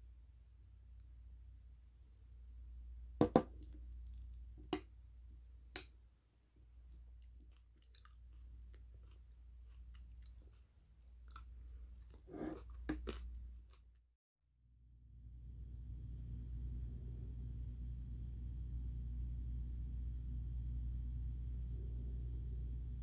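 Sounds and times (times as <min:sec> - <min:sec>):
low steady hum: 0:00.0 - 0:13.8, 0:14.6 - 0:23.0
chewing: 0:06.9 - 0:13.9.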